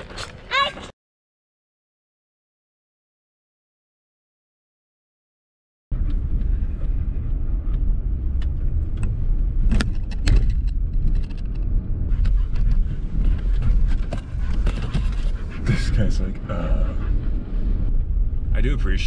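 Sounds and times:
car tyres rumbling on dirt road: 5.9 - 19.0.

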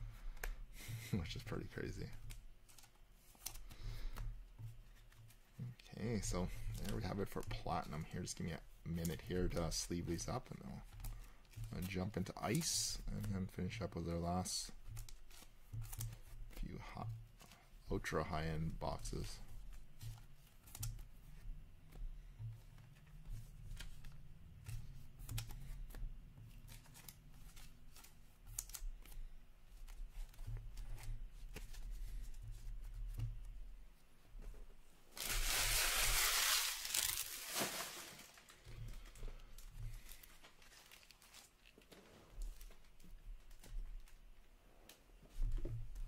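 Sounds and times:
loud crinkling rustle: 35.2 - 38.6, 40.0 - 44.1
cards slipped into plastic sleeves: 35.2 - 42.9.

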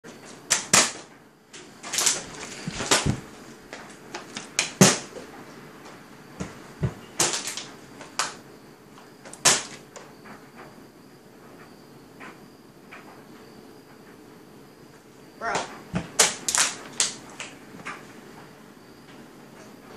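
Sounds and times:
knocks and thumps: 2.2 - 5.3, 6.4 - 7.4.

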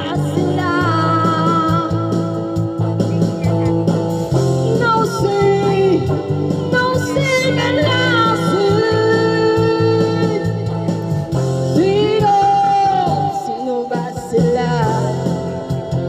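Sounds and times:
karaoke backing track: 0.0 - 16.0
person singing karaoke into microphone: 0.0 - 16.0.

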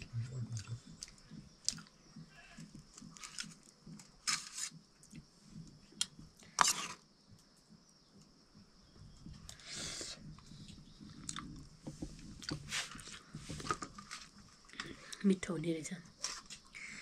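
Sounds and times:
sharp eating noises: 0.0 - 5.3, 9.5 - 11.8
people chewing food: 0.0 - 8.3, 9.0 - 15.3, 16.2 - 17.0.

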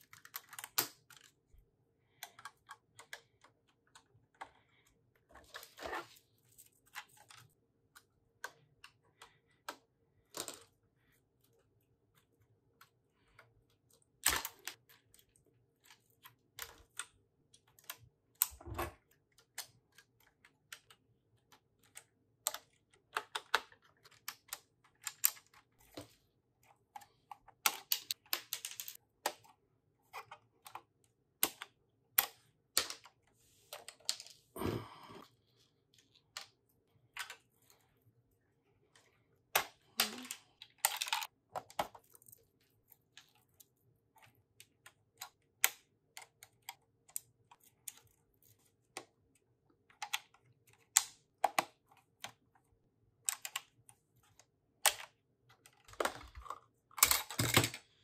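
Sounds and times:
plastic bricks clicking: 39.0 - 42.1.

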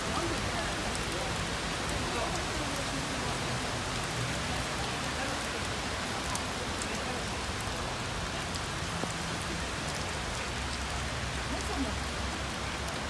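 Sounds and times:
rain on wet pavement: 0.0 - 13.0
raindrop ticks: 0.1 - 3.2, 3.8 - 13.0.

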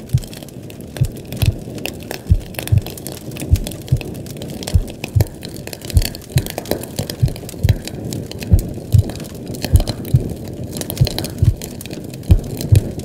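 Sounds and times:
crackling hissing noise: 0.0 - 13.0
slow heartbeat thumps: 0.0 - 13.0.

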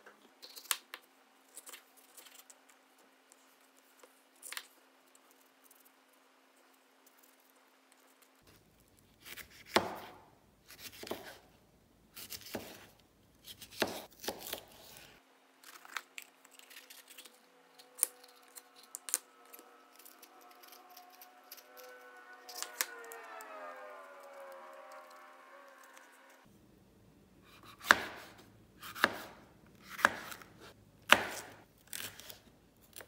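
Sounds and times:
knife slicing peppers with crunch: 9.2 - 11.4, 12.2 - 21.9, 27.4 - 33.0.

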